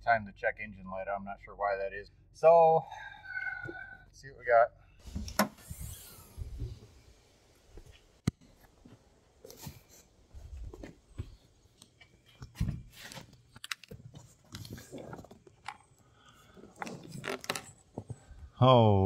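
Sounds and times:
handling clicks knocks and rustles: 10.7s - 16.0s.

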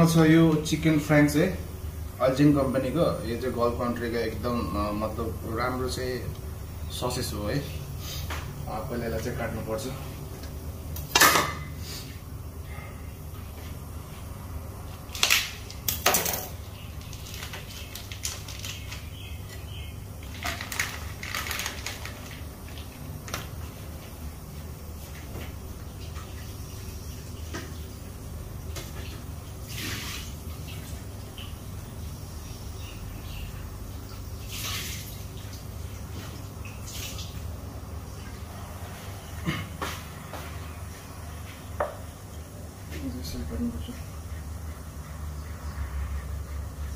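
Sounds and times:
steady low hum: 0.0s - 46.9s
running tap water: 25.0s - 32.5s, 33.6s - 38.4s.

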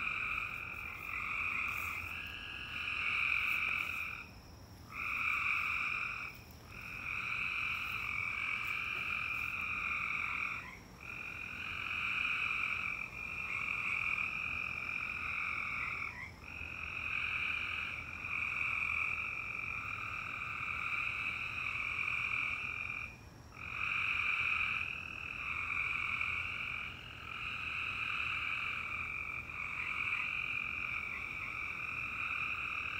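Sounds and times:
frogs trilling: 0.0s - 32.9s.

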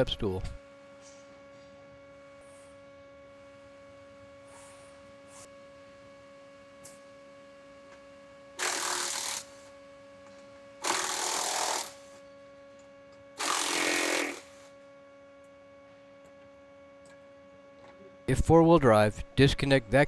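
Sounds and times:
cordless impact wrench bursts: 8.6s - 9.6s, 10.8s - 12.2s, 13.4s - 14.6s.

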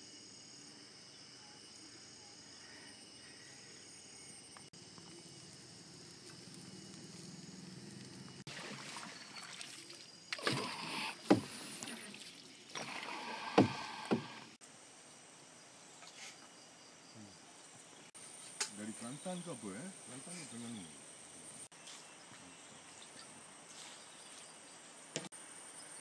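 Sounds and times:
paddle splashing water: 8.5s - 14.5s.

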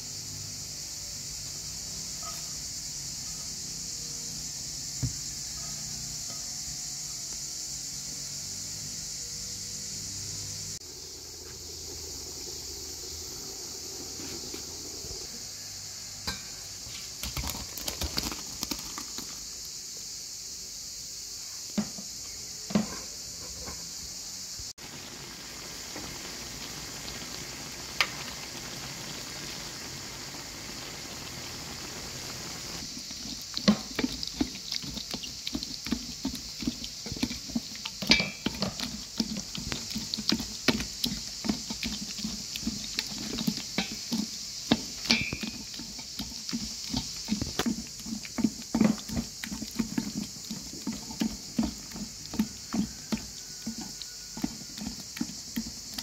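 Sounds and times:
steady hiss: 0.0s - 56.0s
fruit squelching through a colander: 17.0s - 19.5s, 32.8s - 56.0s.

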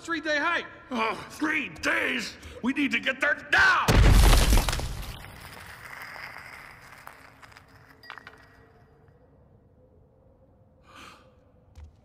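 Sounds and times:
glass clinking and tinkling: 5.6s - 9.2s.

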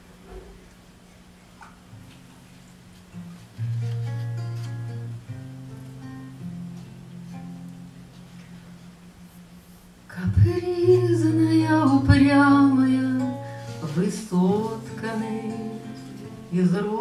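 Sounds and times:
acoustic guitar: 0.0s - 17.0s
woman singing: 10.1s - 17.0s.

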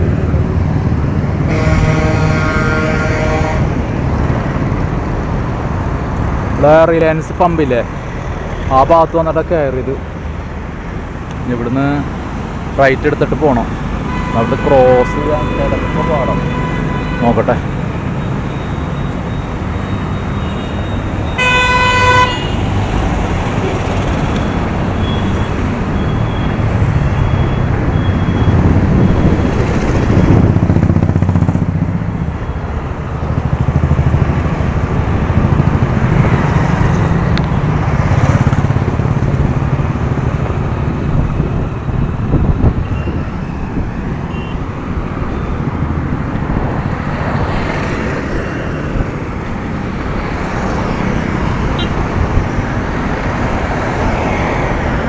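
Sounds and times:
road noise: 0.0s - 55.0s
road traffic engines passing: 0.0s - 55.0s
vehicle horn honking: 1.4s - 3.7s, 14.1s - 17.6s, 21.3s - 22.7s, 44.3s - 44.6s.

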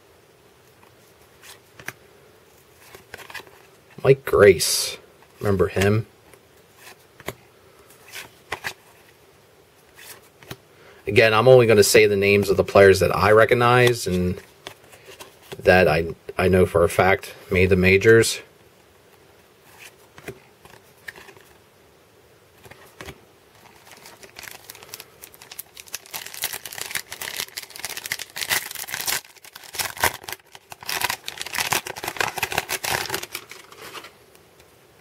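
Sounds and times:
foil wrapper crinkling and tearing: 23.6s - 34.2s.

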